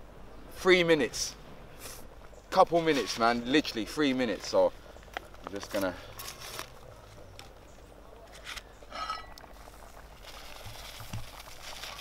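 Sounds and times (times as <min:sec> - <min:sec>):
foil packet rustling: 0:05.6 - 0:06.8, 0:09.8 - 0:12.0
metal pot lid lifted: 0:08.9 - 0:09.4.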